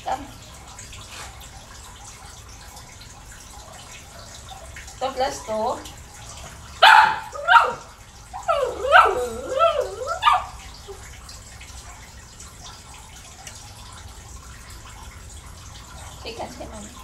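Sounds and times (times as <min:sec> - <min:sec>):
small dog barking and yipping: 0:06.8 - 0:11.0.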